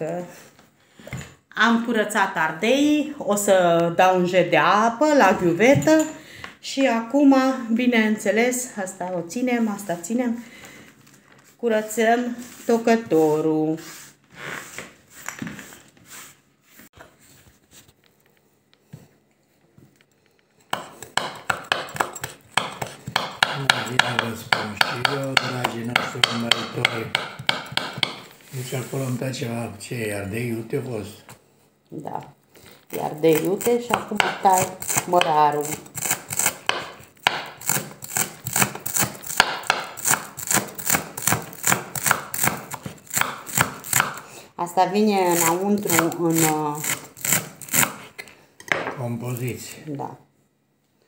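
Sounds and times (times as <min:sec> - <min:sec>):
faint handling sounds: 0:12.3 - 0:20.7
knife chopping on wooden board: 0:20.7 - 0:28.3, 0:33.3 - 0:44.2, 0:45.3 - 0:48.1.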